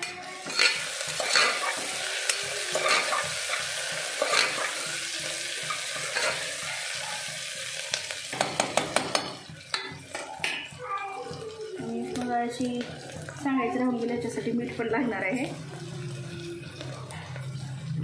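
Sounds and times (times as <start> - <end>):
metal spatula scraping pot: 0.0 - 4.9, 5.6 - 6.6
onions sizzling in hot oil: 0.0 - 18.0.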